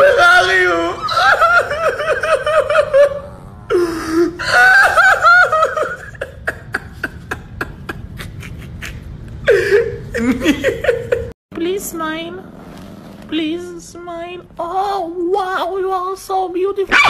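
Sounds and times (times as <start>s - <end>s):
man laughing hard: 0.0s - 11.3s.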